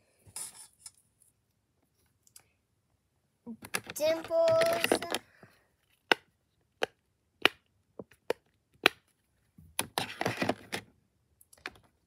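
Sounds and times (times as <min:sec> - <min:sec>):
plastic toys rustling and clattering: 0:03.5 - 0:06.0, 0:09.8 - 0:11.0.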